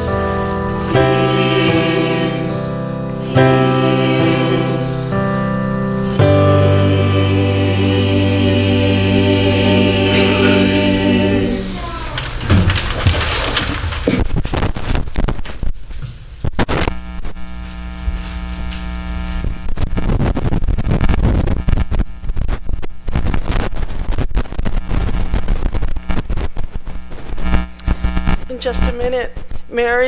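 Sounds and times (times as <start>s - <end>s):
buzzing hum: 0.0s - 12.5s, 16.5s - 29.0s
crackling and knocking on microphones: 12.1s - 17.0s.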